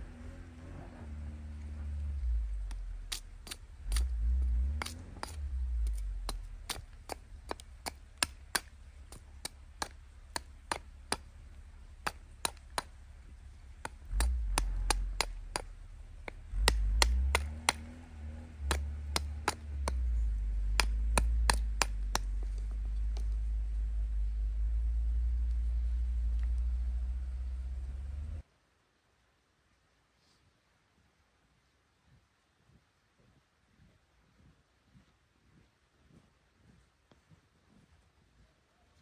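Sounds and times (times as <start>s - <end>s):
low rumble: 0.0s - 28.4s
knife chopping wood: 2.6s - 11.3s, 12.0s - 13.0s, 13.8s - 23.4s.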